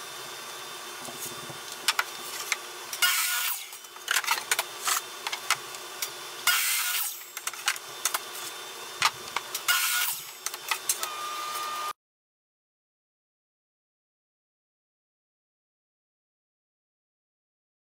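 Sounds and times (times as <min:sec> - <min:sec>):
miter saw cutting wood: 0:02.1 - 0:05.2, 0:06.0 - 0:12.0.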